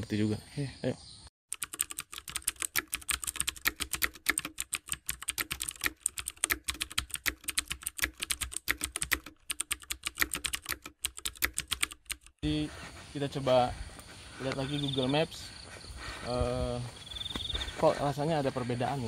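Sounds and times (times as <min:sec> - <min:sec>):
rapid keyboard key clicks: 0:01.5 - 0:12.4.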